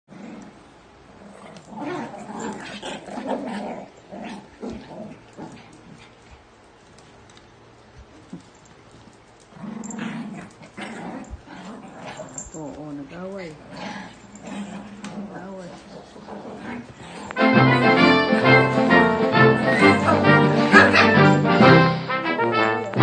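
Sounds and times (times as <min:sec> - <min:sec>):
small dogs growling: 0:00.1 - 0:06.5, 0:09.4 - 0:21.4.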